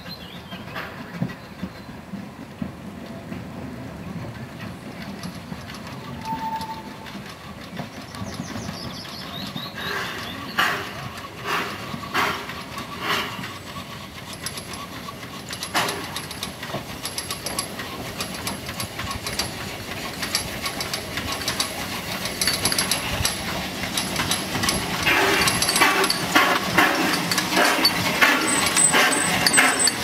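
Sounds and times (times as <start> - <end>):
steam locomotive clanking: 0.0 - 30.0
hiss of steam: 9.7 - 17.0.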